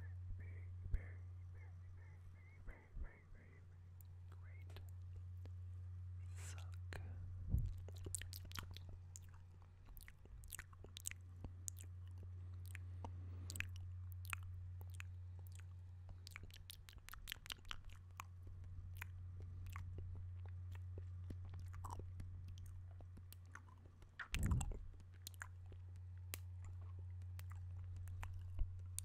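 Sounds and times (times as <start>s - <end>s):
steady low hum: 0.0s - 29.0s
wet mouth clicks and smacks: 7.6s - 29.0s.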